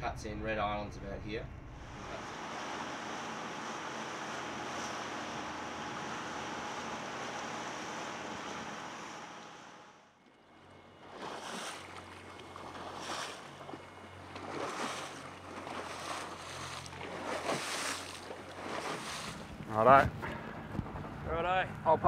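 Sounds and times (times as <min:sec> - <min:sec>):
low boat engine hum: 0:00.0 - 0:22.0
machinery hum: 0:00.0 - 0:22.0
waves on open water: 0:01.6 - 0:22.0
gusts of wind: 0:17.2 - 0:22.0.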